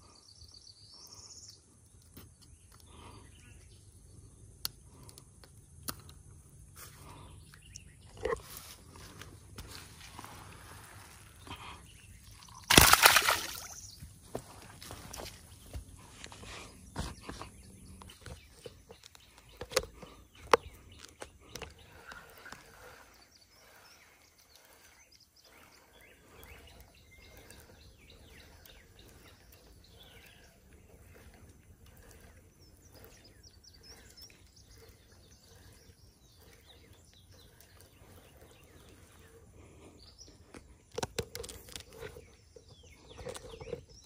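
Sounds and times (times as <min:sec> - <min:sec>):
faint outdoor ambience: 0:00.0 - 0:44.0
small bird chirps: 0:16.7 - 0:44.0
clicks and rustles: 0:40.4 - 0:44.0.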